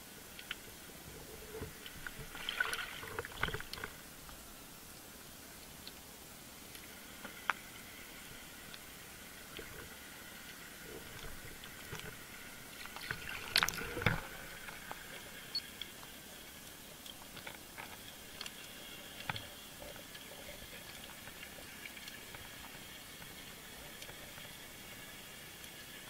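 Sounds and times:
underwater water noise: 0:00.0 - 0:26.0.

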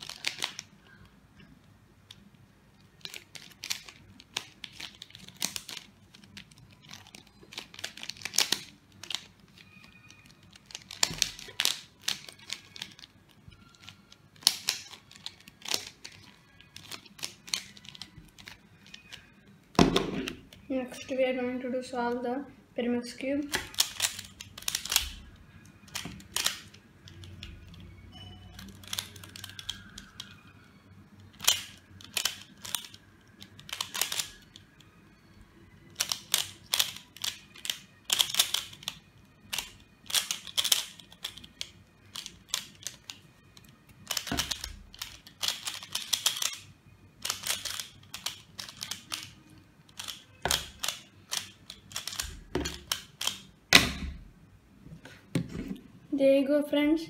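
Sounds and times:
puzzle clicking as it turns: 0:23.5 - 0:25.3, 0:28.6 - 0:30.4, 0:31.3 - 0:34.7, 0:36.0 - 0:53.4.

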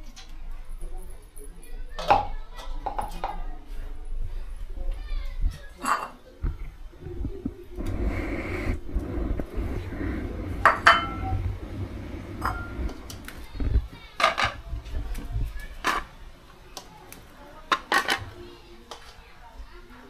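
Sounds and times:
metal pot and plates clinking: 0:10.6 - 0:11.3.

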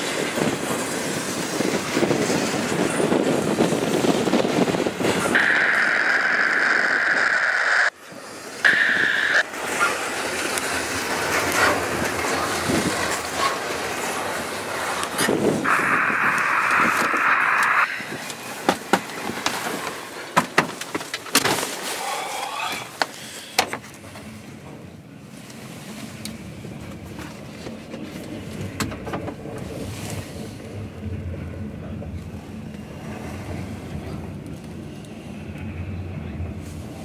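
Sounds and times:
freight train wheels rumbling: 0:00.0 - 0:21.4, 0:22.1 - 0:37.0.

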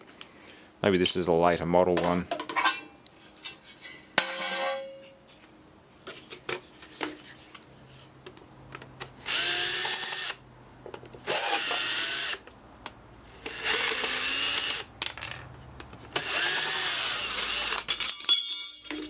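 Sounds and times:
cordless drill running: 0:09.2 - 0:10.4, 0:11.2 - 0:12.4, 0:13.4 - 0:14.9, 0:16.1 - 0:17.8.

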